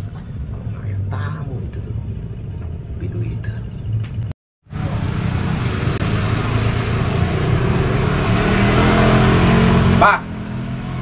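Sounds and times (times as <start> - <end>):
motorcycle engine running: 4.7 - 11.0.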